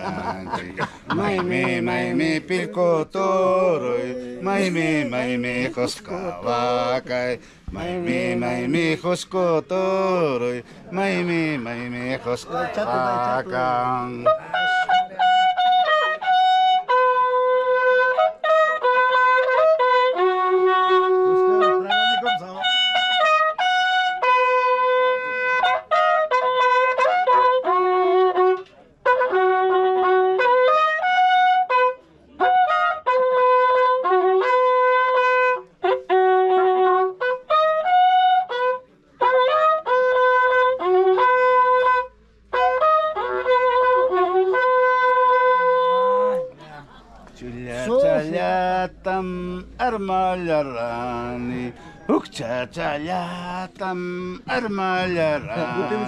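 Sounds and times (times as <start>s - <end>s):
horn trumpet playing a melody: 0.0s - 7.0s, 12.9s - 46.4s, 54.4s - 56.0s.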